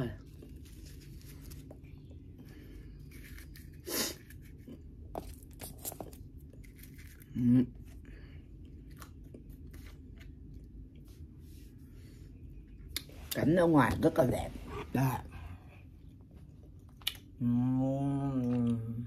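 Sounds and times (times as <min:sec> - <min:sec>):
chewing crunches and clicks: 0:16.7 - 0:17.3.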